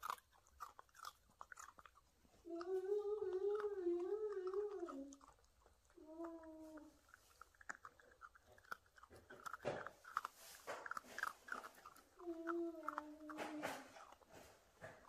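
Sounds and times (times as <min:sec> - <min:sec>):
puppy crunching on a chew: 0:00.0 - 0:15.0
puppy whine: 0:02.4 - 0:07.2, 0:11.2 - 0:14.2.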